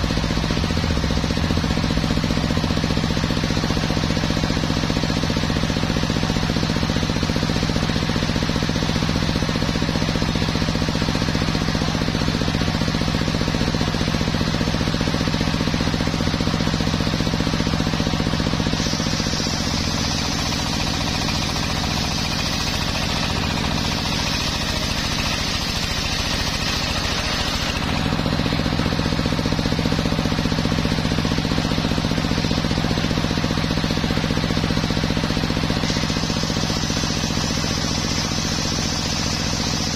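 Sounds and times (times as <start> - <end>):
saw cutting hiss: 14.6 - 39.9
circular saw motor drone: 15.0 - 39.9.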